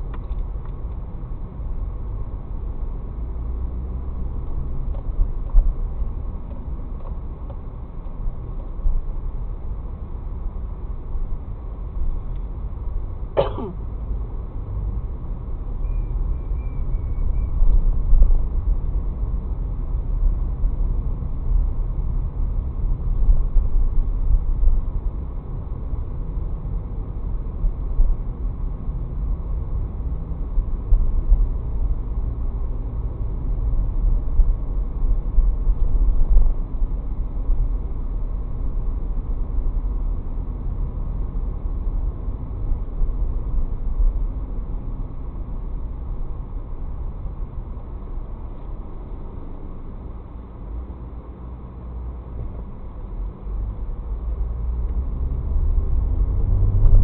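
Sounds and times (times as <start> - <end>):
car cabin rumble: 13.4 - 14.0.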